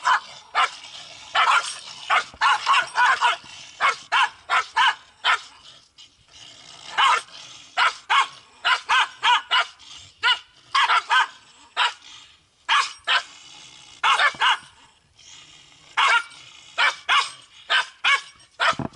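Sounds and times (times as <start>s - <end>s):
dog barking sharply: 14.1s - 14.6s, 16.8s - 18.8s.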